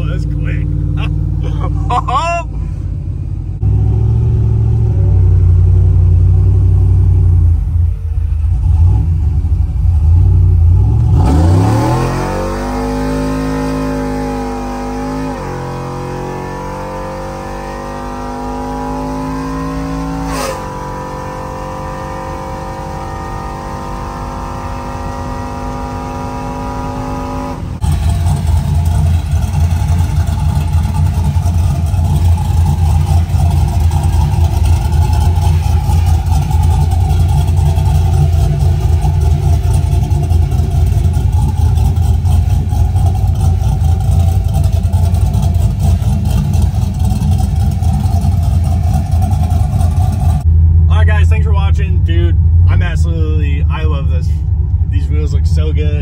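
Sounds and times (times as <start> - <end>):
engine low choppy rumble: 0.0 - 17.9, 24.3 - 56.0
pickup engine accelerating: 0.0 - 56.0.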